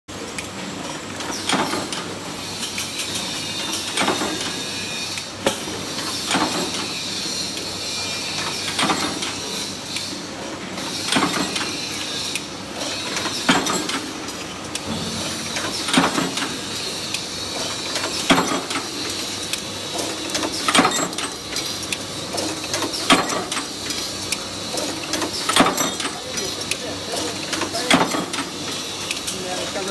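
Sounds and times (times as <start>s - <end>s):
machine whine and hiss: 0.9s - 25.6s
punch press metallic clank: 14.8s - 17.3s.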